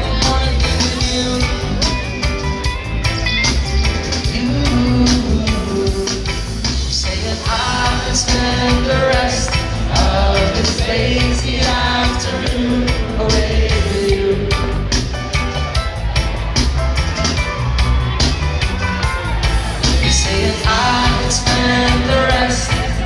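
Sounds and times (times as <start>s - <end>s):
person singing: 0.0s - 2.3s, 4.0s - 15.0s, 19.8s - 23.0s
live reggae band playing: 0.0s - 23.0s.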